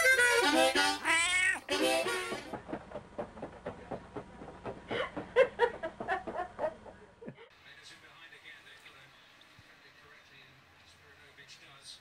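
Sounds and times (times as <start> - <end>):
cat meowing: 1.0 - 1.7.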